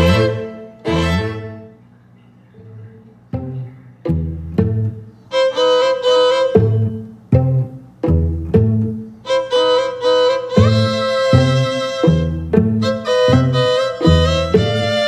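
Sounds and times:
low plucked string notes: 0.0 - 1.7, 3.3 - 15.0
violin-like melody: 0.0 - 1.8, 4.1 - 15.0.

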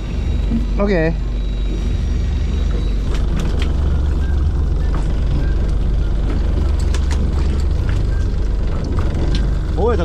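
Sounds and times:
boat engine droning: 0.0 - 10.0.

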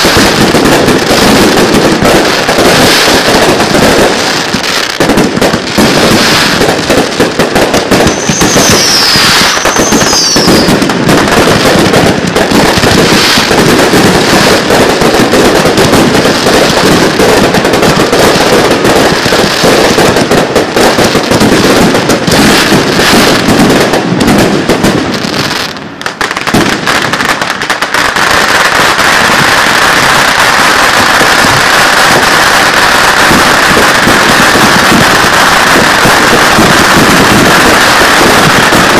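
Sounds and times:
fireworks bursting: 0.0 - 38.9
firework whistle: 7.6 - 14.6.

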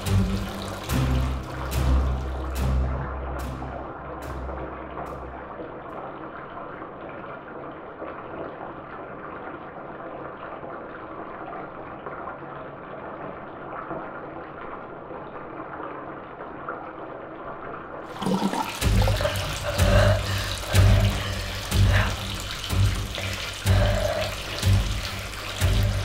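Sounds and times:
water splashing: 0.0 - 5.8, 18.1 - 26.0
muffled underwater bath water: 0.0 - 26.0.

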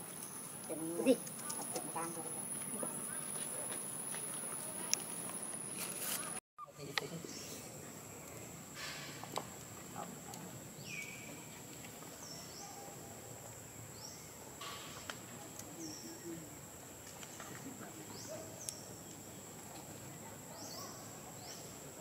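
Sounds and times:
bird chirps: 10.8 - 11.5.

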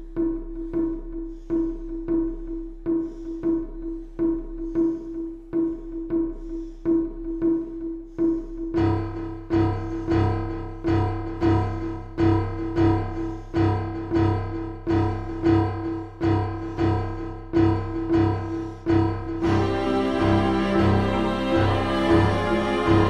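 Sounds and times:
sustained instrument layer: 19.3 - 23.0.

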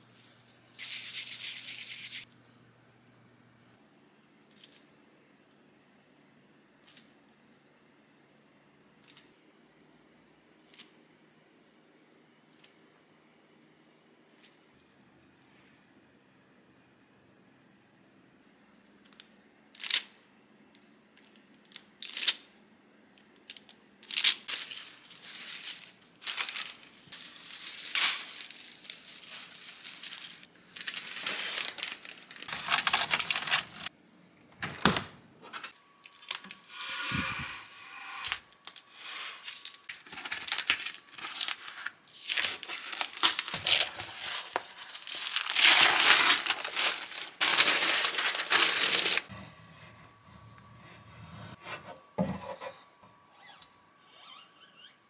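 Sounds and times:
paper crinkling and rustling: 24.1 - 33.9, 38.2 - 49.3
paper tearing: 39.2 - 49.3.

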